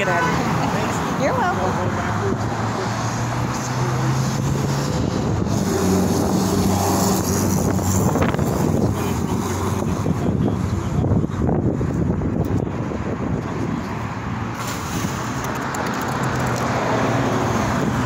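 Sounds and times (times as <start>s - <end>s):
road traffic engine hum: 0.0s - 18.0s
wind on microphone: 4.1s - 15.2s, 16.2s - 18.0s.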